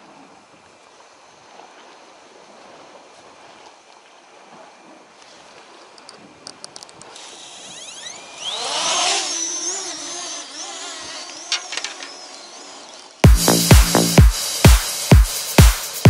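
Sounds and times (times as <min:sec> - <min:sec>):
drone motors whining: 0:07.0 - 0:14.6
clicks: 0:11.2 - 0:12.5
music with a beat: 0:13.2 - 0:16.0.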